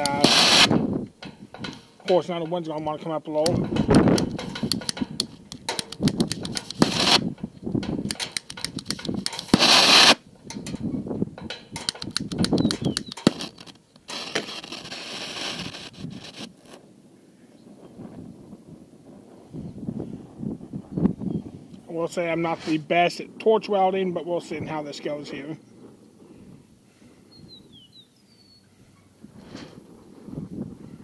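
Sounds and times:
torch gas rushing bursts: 0:00.0 - 0:02.0, 0:06.0 - 0:07.4, 0:08.3 - 0:10.2, 0:12.7 - 0:16.8
flint striker clicks: 0:03.4 - 0:06.8, 0:07.8 - 0:09.6, 0:11.8 - 0:13.3.

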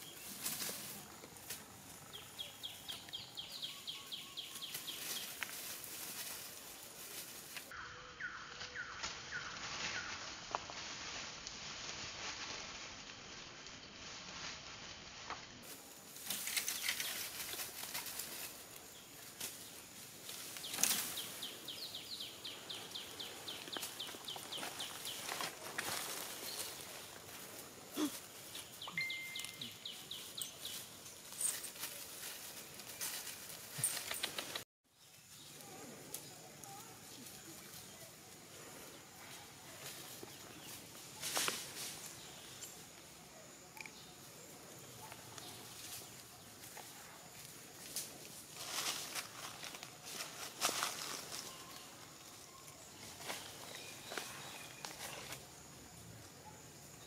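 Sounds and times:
bird chirping: 0:01.8 - 0:05.4, 0:28.0 - 0:31.7
leaf litter rustling: 0:08.8 - 0:42.6, 0:44.9 - 0:55.6.

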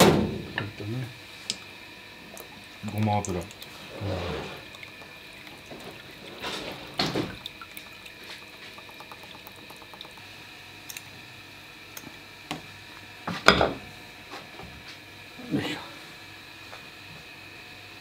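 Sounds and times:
oil dripping into tub: 0:01.5 - 0:11.1.

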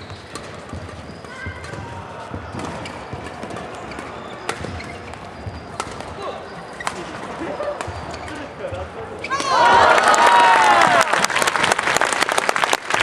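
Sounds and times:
racket striking shuttlecock: 0:00.0 - 0:08.3
shoes squeaking on court: 0:00.0 - 0:09.6
voices in a hall: 0:01.1 - 0:13.0.

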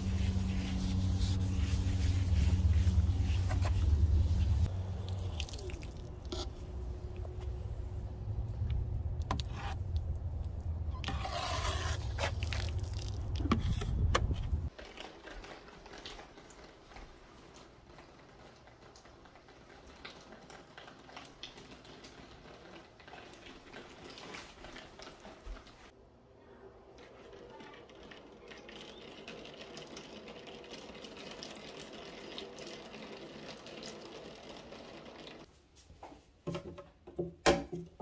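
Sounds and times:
pole brush scrubbing window glass: 0:00.0 - 0:04.7, 0:11.0 - 0:12.7.

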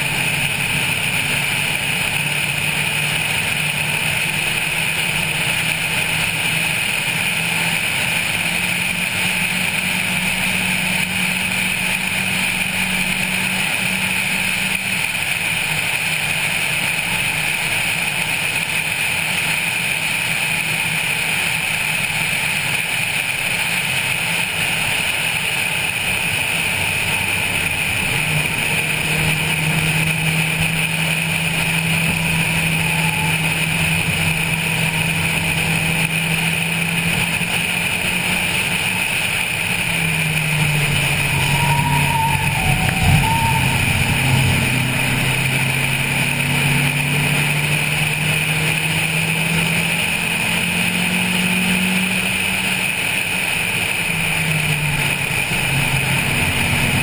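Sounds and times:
car engine running hard: 0:00.0 - 0:57.0
wind and road noise: 0:00.0 - 0:57.0.

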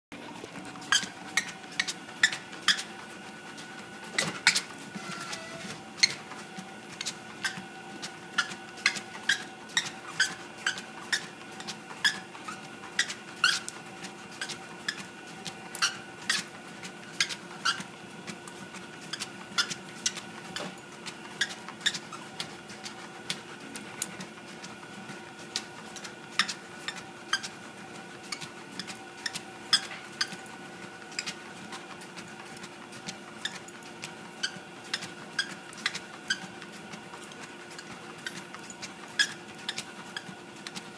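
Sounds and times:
treadmill motor whine: 0:00.1 - 0:40.9.

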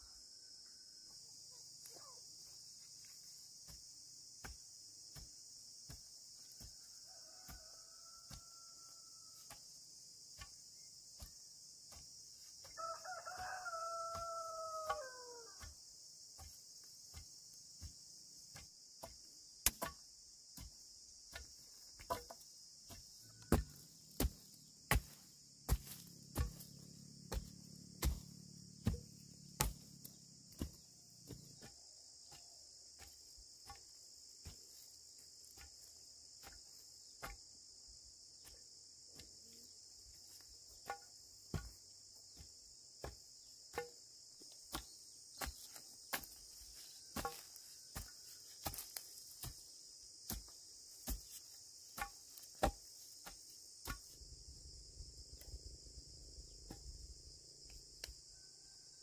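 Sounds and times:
insects chorus: 0:00.0 - 0:59.0
stick thudding into soil: 0:18.5 - 0:31.6, 0:42.4 - 0:44.0, 0:44.7 - 0:49.6, 0:50.2 - 0:54.2.

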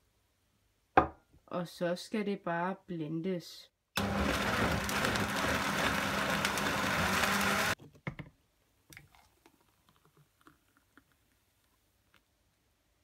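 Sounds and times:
blender running: 0:04.0 - 0:07.8.

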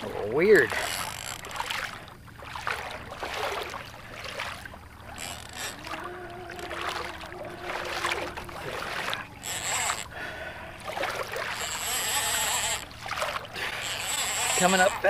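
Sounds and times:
steady hum: 0:00.0 - 0:15.0
water slapping against kayak hull: 0:00.0 - 0:15.0
fishing reel cranking: 0:00.5 - 0:01.6, 0:05.1 - 0:08.7, 0:09.4 - 0:10.2, 0:11.2 - 0:15.0.

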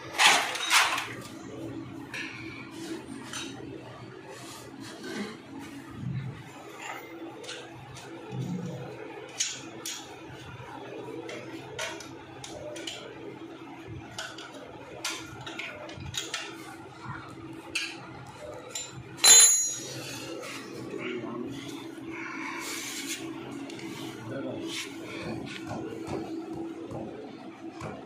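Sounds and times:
loud ringing metal clank: 0:19.2 - 0:20.0.

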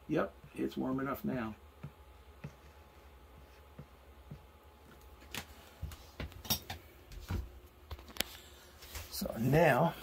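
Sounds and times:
taps and clicks of handled objects: 0:01.8 - 0:02.6.

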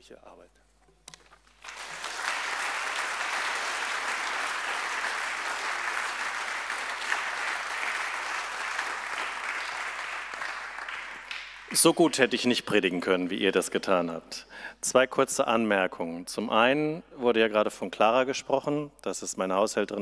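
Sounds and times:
crowd applauding: 0:01.4 - 0:12.2.

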